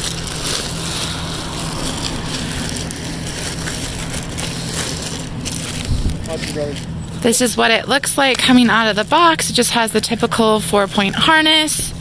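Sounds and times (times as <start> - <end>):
plastic wrapping crinkling: 0.0 - 7.4
steady low hum: 0.0 - 12.0.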